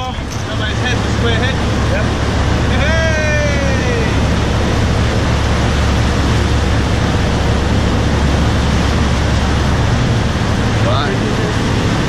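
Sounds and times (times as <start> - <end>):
churning wake water: 0.0 - 12.0
low engine drone: 0.0 - 12.0.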